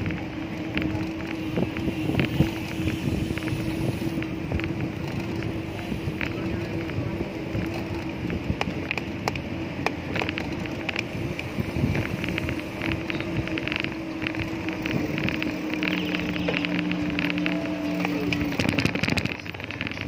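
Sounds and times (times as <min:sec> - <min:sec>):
bicycle rolling on road: 0:00.0 - 0:20.0
wind buffeting microphone: 0:00.0 - 0:20.0.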